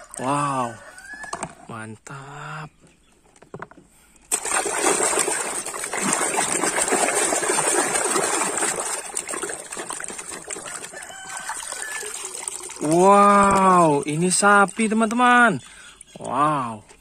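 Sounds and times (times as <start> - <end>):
hand splashing water in a tub: 4.3 - 15.6.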